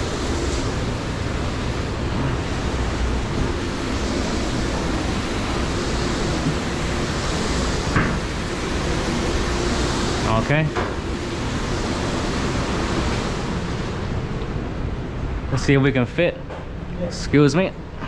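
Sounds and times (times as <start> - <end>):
faint hum: 0.0 - 18.0
fan running: 0.0 - 18.0.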